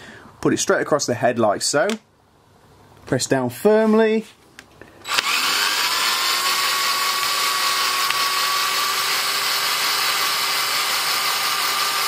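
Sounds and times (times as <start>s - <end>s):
power drill motor whine: 5.0s - 12.0s.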